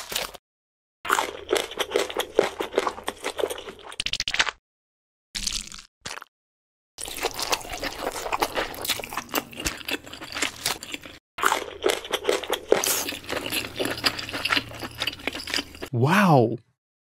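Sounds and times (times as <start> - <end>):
crunching and cracking: 0.0 - 0.4, 7.0 - 15.9.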